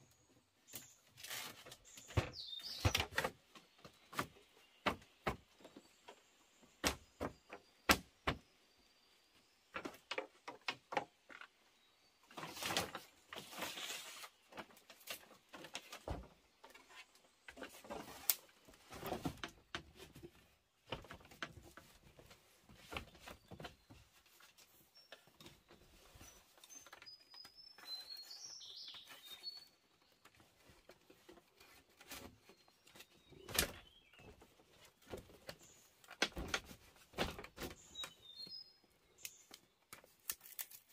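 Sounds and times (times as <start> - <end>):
bird chirping: 0.0 - 10.0, 22.8 - 31.3, 32.4 - 36.2, 37.6 - 40.6
knocks and clatter of hand work: 1.5 - 6.2, 14.5 - 27.1, 30.2 - 38.1.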